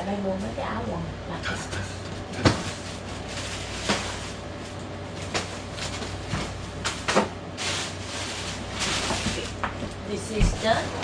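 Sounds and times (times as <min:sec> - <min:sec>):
steady low hum: 0:00.0 - 0:11.0
items rustling in a suitcase: 0:02.3 - 0:11.0.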